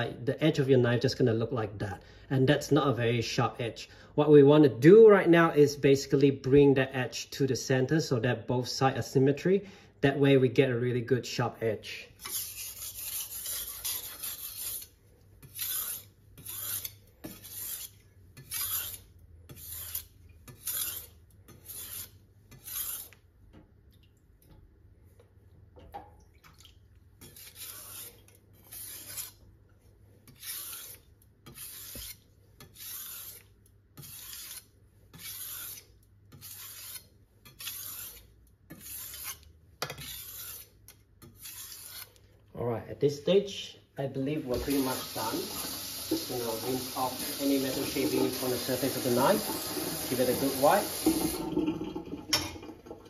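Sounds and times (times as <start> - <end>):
knife scraping on whetstone: 12.2 - 23.2, 27.2 - 29.4, 30.2 - 42.2, 44.5 - 51.4.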